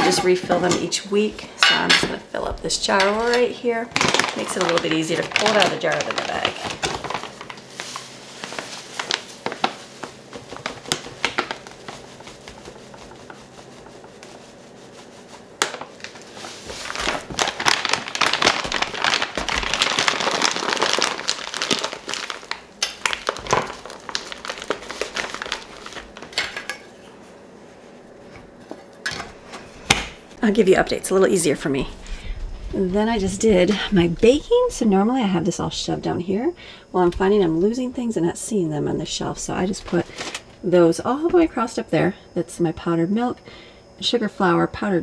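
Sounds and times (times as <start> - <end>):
coffee bag crinkling: 2.8 - 26.7.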